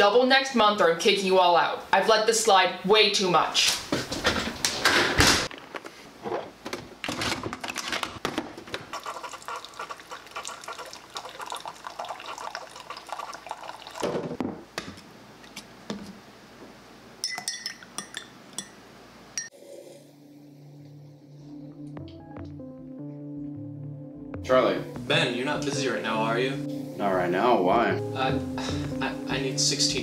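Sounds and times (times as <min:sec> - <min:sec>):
coffee maker brewing: 0:08.6 - 0:14.4
coffee dripping into a mug: 0:09.0 - 0:14.0
spoon clinking in a mug: 0:17.2 - 0:18.8.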